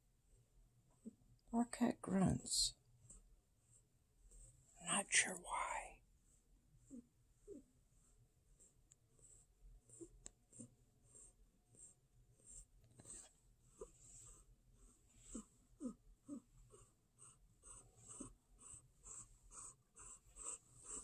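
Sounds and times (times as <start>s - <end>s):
cat grunting: 15.2s - 21.0s.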